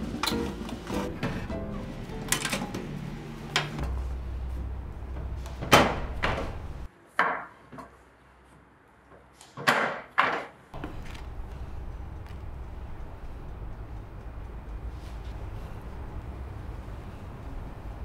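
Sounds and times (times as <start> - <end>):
low hum: 0.9 - 6.9.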